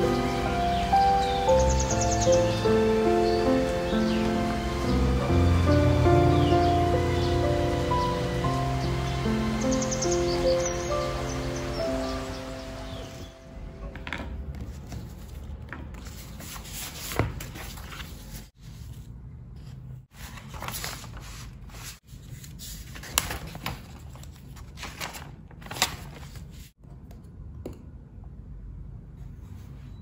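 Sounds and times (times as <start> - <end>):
notebook pages rustling: 14.0 - 26.8.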